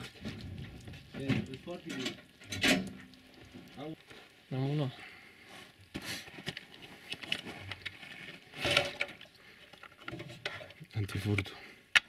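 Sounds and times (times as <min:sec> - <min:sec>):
cables clicking and rustling: 0:05.8 - 0:12.0.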